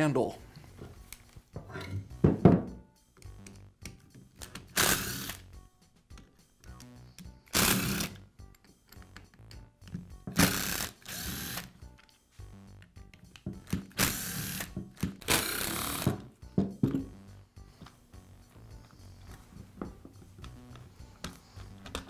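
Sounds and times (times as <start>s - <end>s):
cordless screwdriver running: 4.8s - 5.4s, 7.5s - 8.2s, 10.4s - 11.7s, 14.0s - 14.7s, 15.3s - 16.2s.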